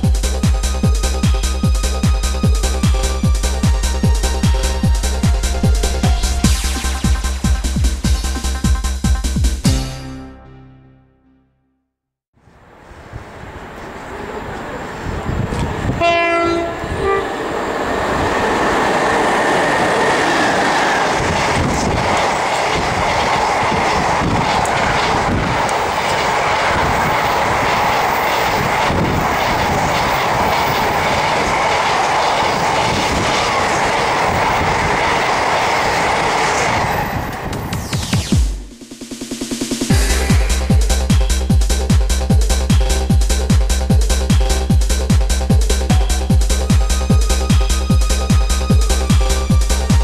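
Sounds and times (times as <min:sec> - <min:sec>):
locomotive horn: 0:15.9 - 0:17.4
train wheels clattering on rails: 0:17.9 - 0:38.0.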